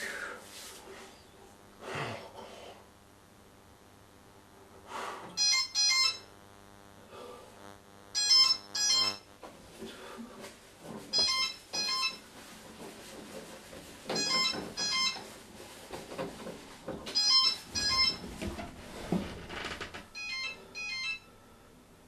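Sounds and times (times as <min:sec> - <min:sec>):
mobile phone ringing: 0:05.4 - 0:06.3, 0:08.1 - 0:09.3, 0:11.1 - 0:12.2, 0:14.1 - 0:15.3, 0:17.1 - 0:18.3, 0:20.1 - 0:21.4.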